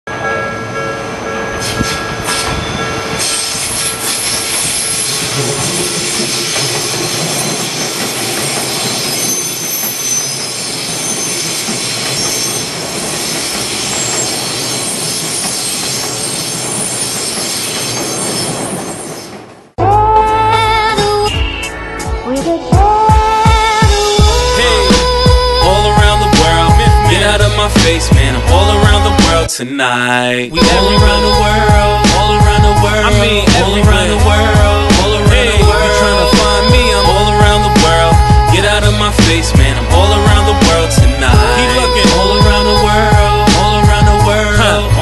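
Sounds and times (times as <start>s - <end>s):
train wheels rushing on rails: 0.7s - 19.8s, 23.4s - 29.5s, 30.6s - 45.0s
music: 19.8s - 29.5s, 30.6s - 45.0s
thin high tones: 30.6s - 33.4s, 35.6s - 38.5s, 41.4s - 44.4s.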